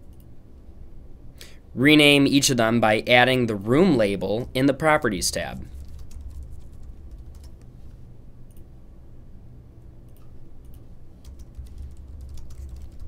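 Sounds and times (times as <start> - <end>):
steady low hum: 0.0 - 13.0
keyboard typing: 5.7 - 7.7, 10.1 - 13.0.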